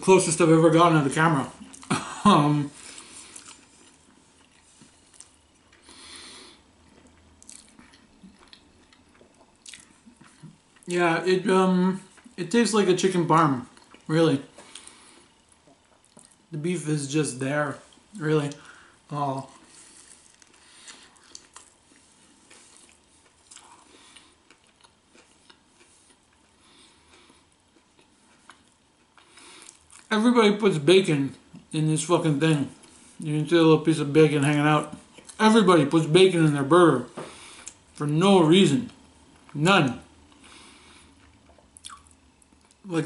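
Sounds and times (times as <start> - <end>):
chewing food: 6.8 - 10.9, 19.4 - 30.1, 40.3 - 42.8
soft hiss: 9.4 - 43.0.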